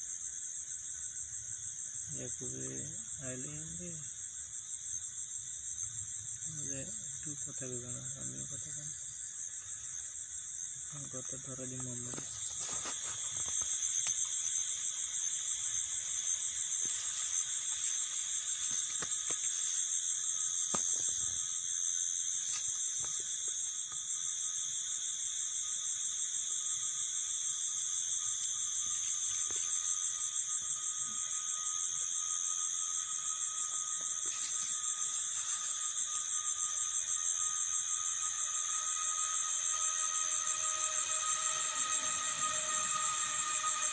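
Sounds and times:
crickets trilling: 0.0 - 43.9.

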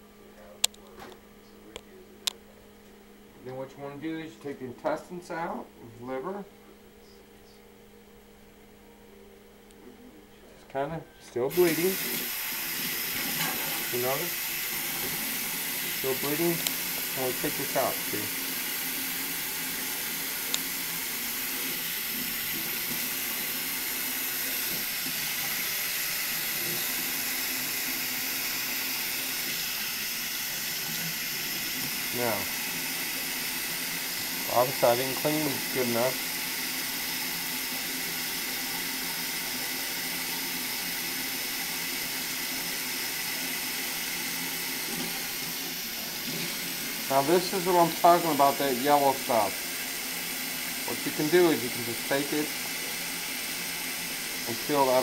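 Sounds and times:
faucet running into metal sink: 11.5 - 55.0.

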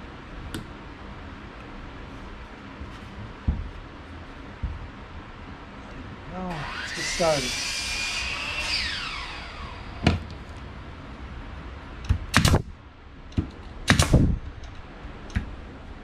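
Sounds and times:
nail gun shots into wood: 12.1 - 12.7, 13.9 - 14.3.

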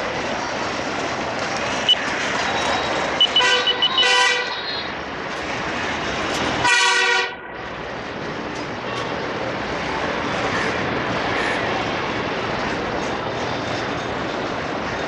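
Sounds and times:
rail and street noise rumble: 0.0 - 15.0
horn honking: 2.6 - 5.0, 6.6 - 7.4.

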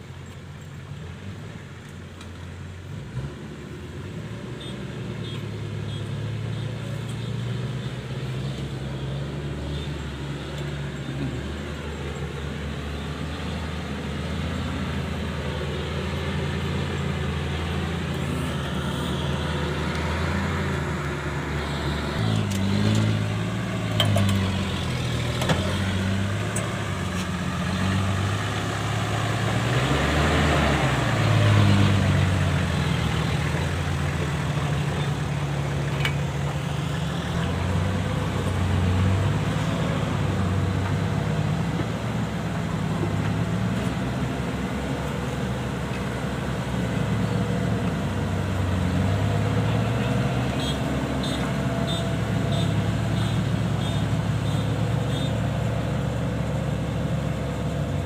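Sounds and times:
truck engine running: 0.0 - 58.0
combine harvester engine running: 8.5 - 58.0.

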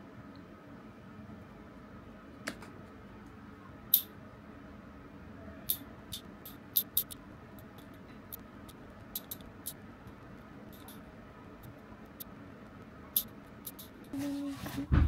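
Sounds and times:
faint room hum: 0.0 - 15.0
scissors snipping hair: 5.7 - 8.0, 9.2 - 9.8, 10.7 - 11.0, 13.2 - 14.2.

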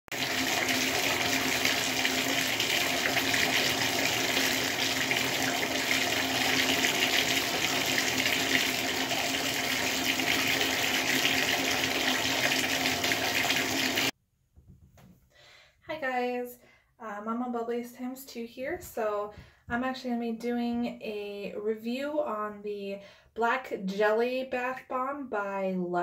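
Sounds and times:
water running into bathtub: 0.0 - 14.2.

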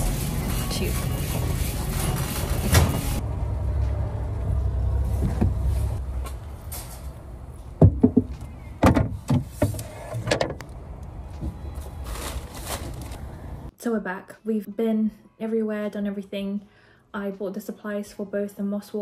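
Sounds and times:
sharp clunks and knocks: 7.8 - 10.6.

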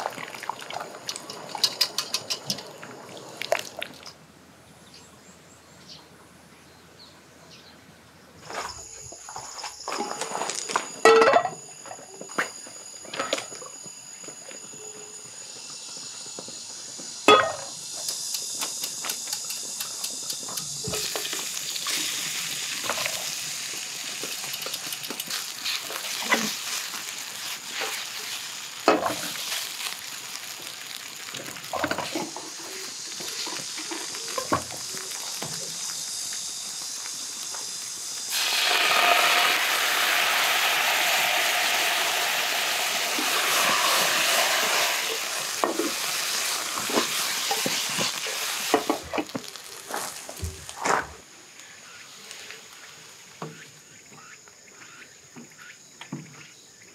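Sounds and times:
food sizzling in a frying pan: 0.0 - 4.1, 10.9 - 50.8.

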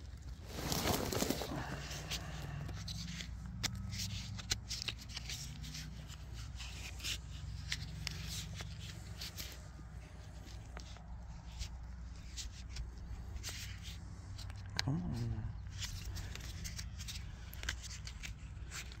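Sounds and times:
plastic tape rustling and crinkling: 0.0 - 14.8, 15.6 - 19.0.

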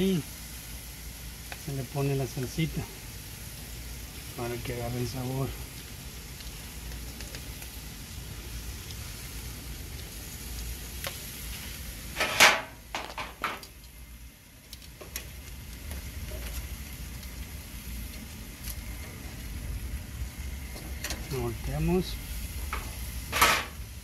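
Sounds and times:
steady low rumble: 0.0 - 13.0, 13.6 - 24.0
metal tongs scraping a grill grate: 12.1 - 13.8, 20.7 - 21.3, 22.7 - 23.8.

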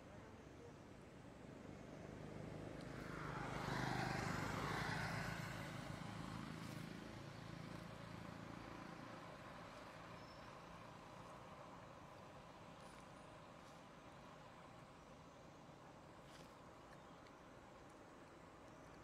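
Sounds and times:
vehicle passing by: 1.6 - 10.8.

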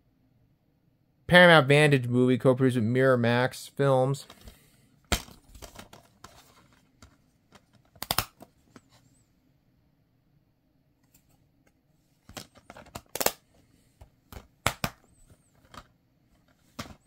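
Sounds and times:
plastic case clicks and snaps: 7.5 - 8.5, 12.3 - 13.4, 14.3 - 15.0.

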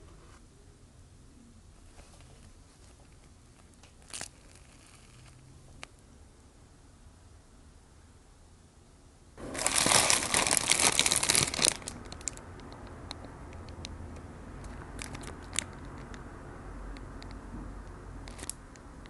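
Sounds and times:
paper wrappers crinkling: 1.9 - 5.4, 9.4 - 12.4.

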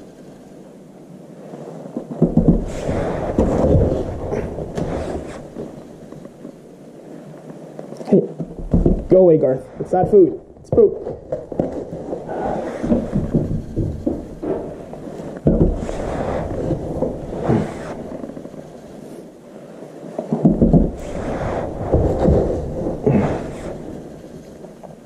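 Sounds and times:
scoop scraping cat litter: 15.8 - 18.2.

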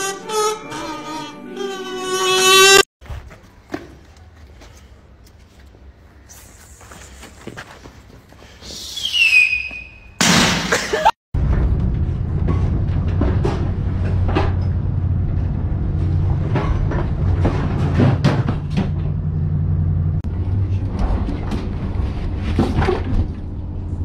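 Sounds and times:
knocks and thumps: 16.4 - 19.2.

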